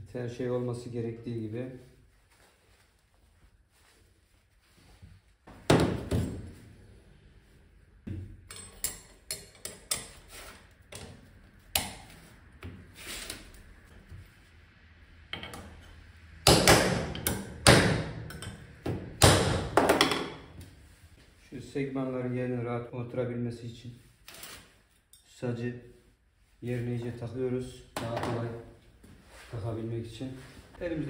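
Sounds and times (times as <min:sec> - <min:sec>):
metal parts and tools clinking: 0:08.4 - 0:10.2.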